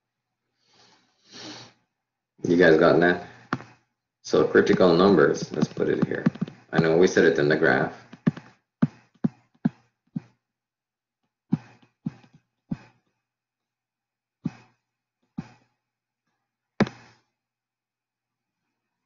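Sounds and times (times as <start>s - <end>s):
stylus tapping on tablet screen: 3.5s - 3.8s, 4.7s - 6.9s, 8.0s - 10.4s, 14.5s - 14.7s, 16.8s - 17.2s.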